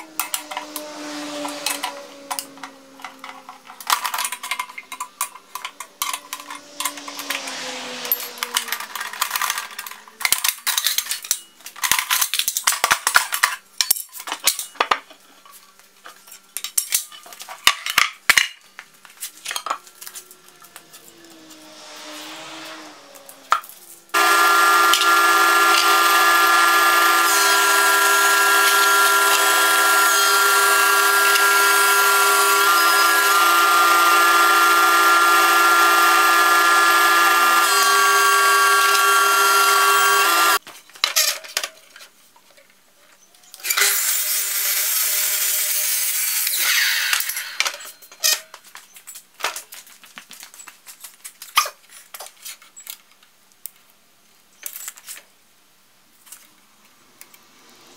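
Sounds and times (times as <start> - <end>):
thickness planer running: 0.0 - 4.4, 24.1 - 40.6.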